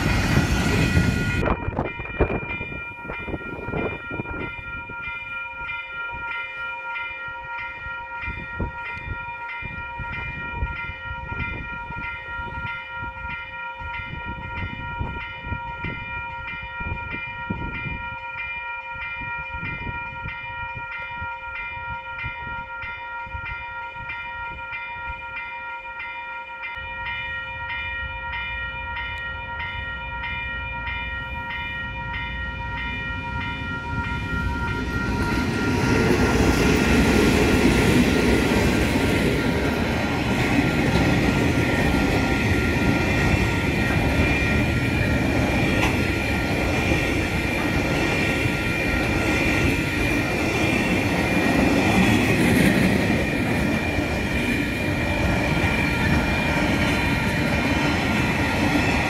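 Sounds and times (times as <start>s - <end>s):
diesel locomotive engine rumble: 0.0s - 4.9s, 27.6s - 59.0s
level crossing warning bell: 0.0s - 59.0s.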